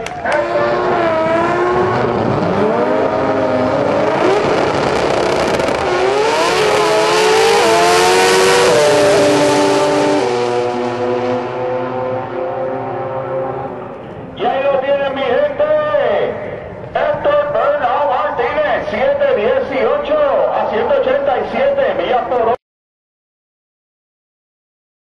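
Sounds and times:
racing car engines revving: 0.0s - 15.6s.

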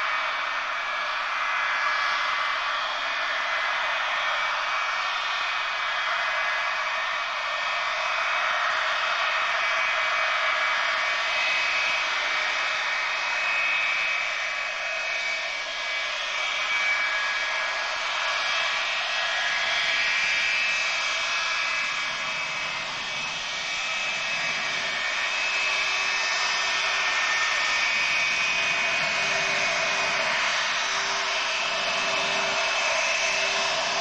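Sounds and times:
jet engines whining: 9.7s - 34.0s
low jet hum: 21.6s - 34.0s.

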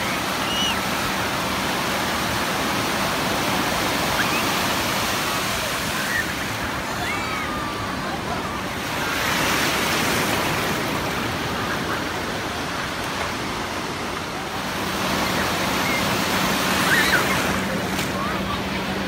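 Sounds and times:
ocean surf breaking: 0.0s - 19.0s.

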